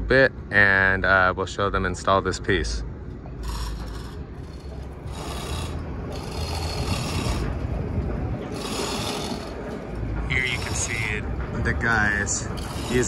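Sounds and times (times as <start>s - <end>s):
low rumble: 2.8s - 13.0s
ratchet hoist rasping: 3.4s - 7.6s, 8.5s - 11.2s, 12.1s - 13.0s.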